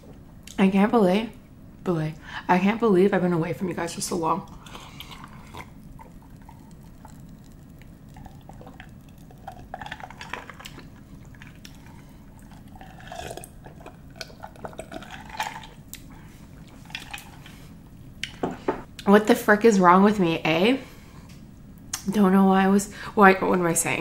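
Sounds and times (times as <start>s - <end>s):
gulping and swallowing: 4.6s - 15.8s.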